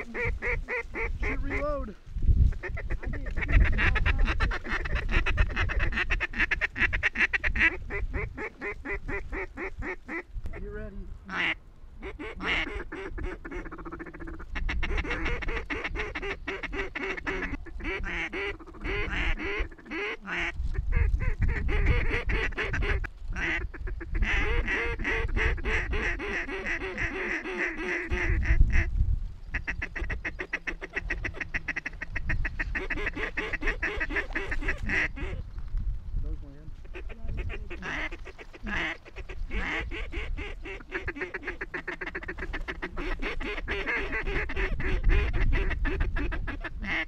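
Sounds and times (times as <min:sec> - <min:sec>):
fast chattering calls: 0:00.0 - 0:01.9, 0:02.5 - 0:10.6, 0:11.3 - 0:35.6, 0:36.8 - 0:47.0
mallard quacking: 0:00.0 - 0:01.9, 0:02.6 - 0:10.6, 0:11.3 - 0:28.9, 0:29.5 - 0:35.4, 0:36.8 - 0:47.0.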